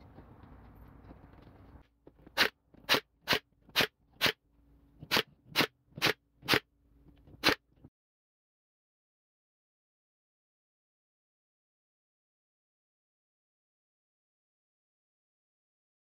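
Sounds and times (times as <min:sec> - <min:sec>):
nail gun firing: 0:02.4 - 0:04.4, 0:05.0 - 0:06.7, 0:07.4 - 0:07.6.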